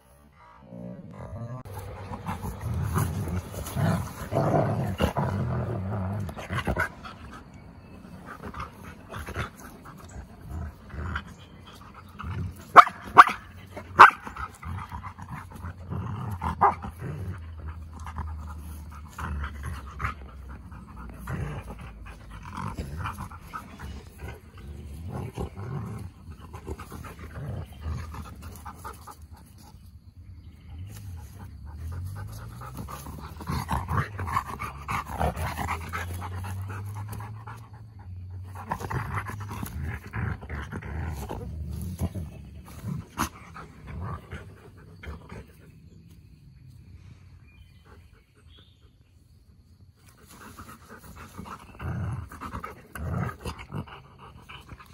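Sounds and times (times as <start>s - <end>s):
dogs growling: 0.0s - 54.9s
dogs panting: 6.2s - 15.9s, 17.4s - 46.2s
sharp dog barks: 12.7s - 13.4s, 14.0s - 14.2s.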